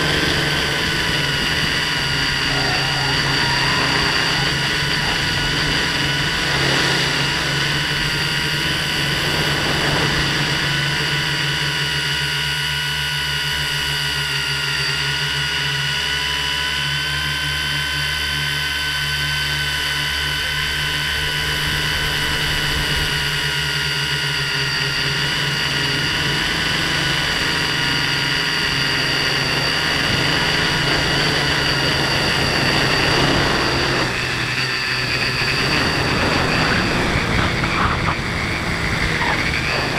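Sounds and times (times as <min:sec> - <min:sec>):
drone motors whining: 0:00.0 - 0:39.9
low rumble: 0:35.0 - 0:39.9.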